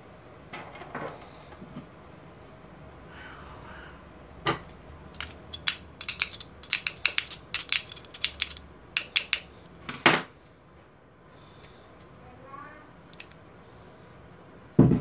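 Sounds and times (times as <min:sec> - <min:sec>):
screwdriver clicking on metal: 0:05.2 - 0:09.5.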